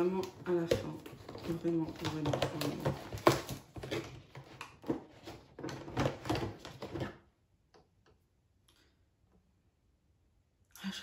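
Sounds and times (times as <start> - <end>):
cardboard packaging crinkling: 0.0 - 7.2.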